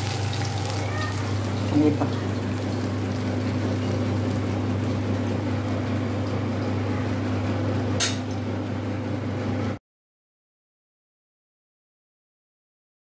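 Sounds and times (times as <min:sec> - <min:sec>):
motor hum: 0:00.0 - 0:09.8.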